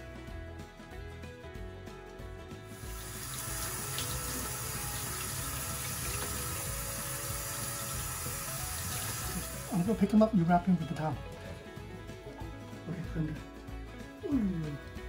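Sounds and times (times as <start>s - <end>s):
water running from tap into sink: 2.7s - 10.0s.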